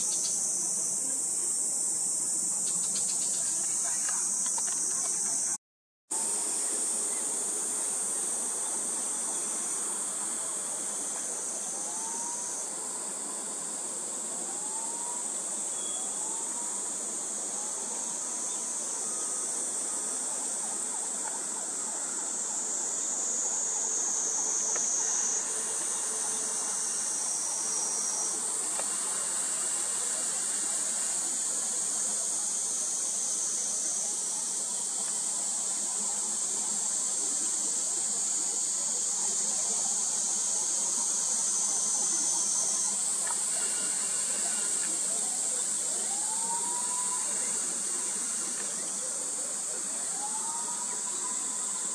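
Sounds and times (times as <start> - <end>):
cicadas buzzing: 0.0 - 51.9.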